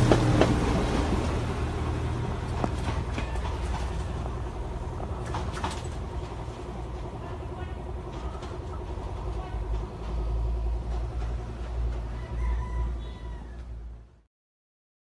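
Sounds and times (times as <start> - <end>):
train rumbling along track: 0.0 - 14.3
rooster crowing: 12.0 - 13.8.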